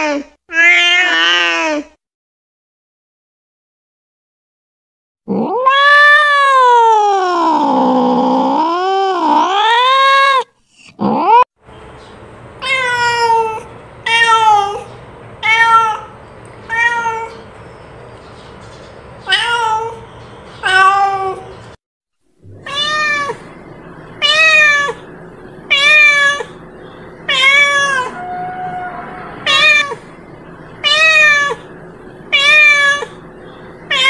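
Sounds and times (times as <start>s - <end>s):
cat meowing: 0.5s - 1.8s, 5.3s - 8.0s, 12.6s - 17.4s, 19.2s - 20.0s, 20.6s - 21.5s, 22.5s - 23.5s, 24.2s - 25.0s, 25.7s - 26.6s, 27.3s - 30.2s, 30.8s - 31.7s, 32.3s - 33.2s.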